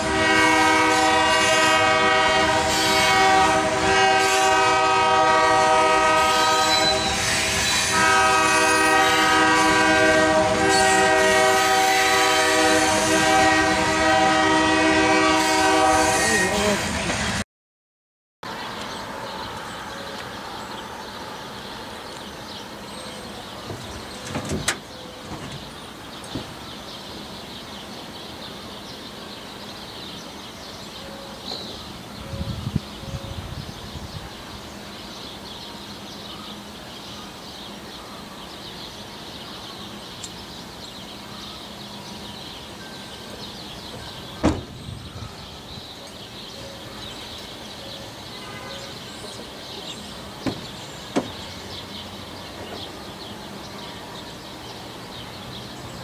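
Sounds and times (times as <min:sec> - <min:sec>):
freight train wheels rolling: 0:18.5 - 0:37.9, 0:38.5 - 0:56.0.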